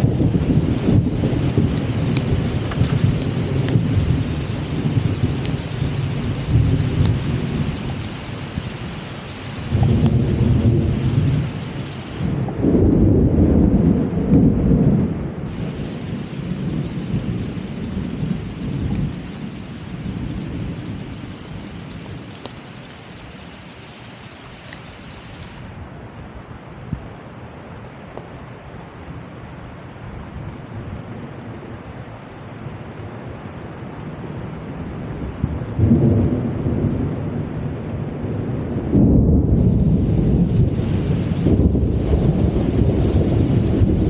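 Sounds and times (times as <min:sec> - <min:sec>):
thunder rumbling: 0:00.0 - 0:22.8, 0:34.8 - 0:44.0
rain falling: 0:00.0 - 0:44.0.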